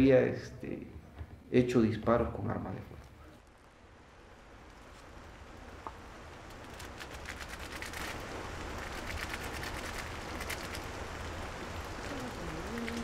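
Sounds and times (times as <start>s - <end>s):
steady hiss: 1.5s - 13.0s
dense crackling: 3.0s - 13.0s.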